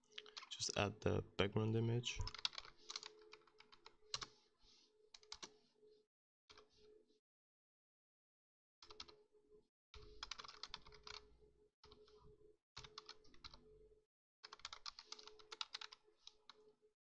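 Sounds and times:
faint computer keyboard typing: 0.1 - 0.6, 2.2 - 4.4, 5.1 - 5.6, 8.8 - 9.2, 10.0 - 12.2, 12.8 - 13.7, 14.4 - 16.7.

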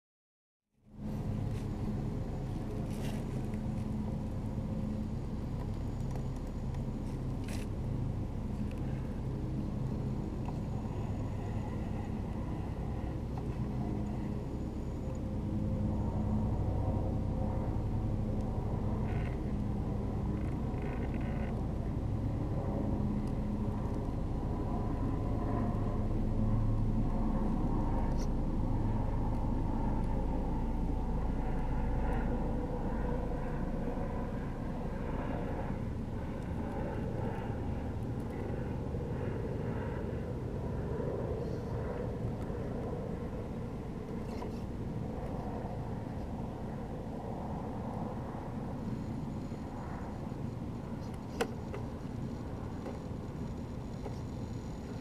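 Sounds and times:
low hum: 0.7 - 55.0.

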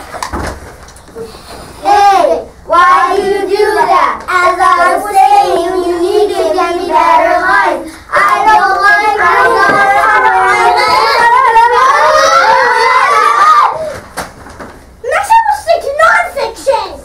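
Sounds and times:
young children singing: 1.8 - 13.9.

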